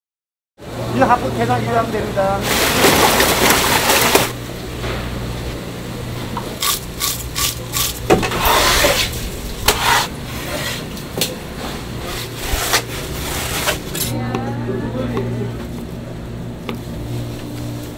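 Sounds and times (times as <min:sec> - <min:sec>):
low steady hum: 0:00.6 - 0:17.9
knife scraping fish: 0:06.6 - 0:10.9, 0:12.0 - 0:14.1.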